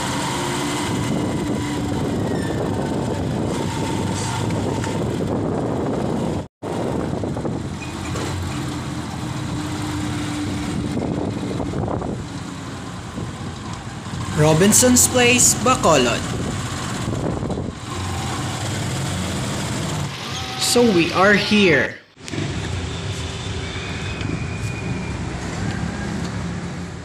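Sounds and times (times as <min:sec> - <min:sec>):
road noise: 0:00.0 - 0:27.0.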